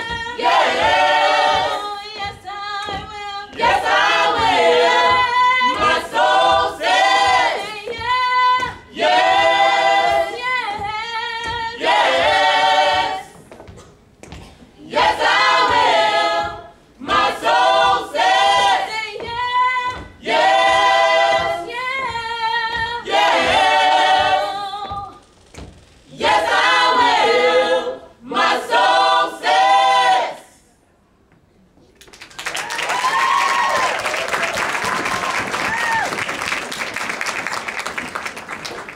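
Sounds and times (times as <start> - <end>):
choir singing a cappella: 0.0 - 13.4, 14.8 - 25.3, 26.0 - 30.8.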